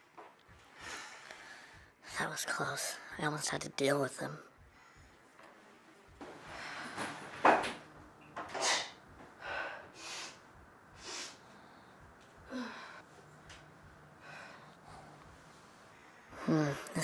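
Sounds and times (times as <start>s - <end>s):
woman breathing heavily: 0.5s - 2.1s, 4.5s - 17.0s
woman groaning: 12.4s - 13.0s.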